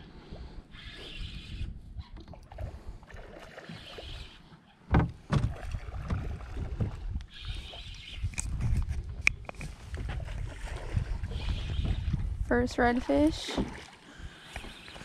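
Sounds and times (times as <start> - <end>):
water and wind rumble: 0.0 - 15.0.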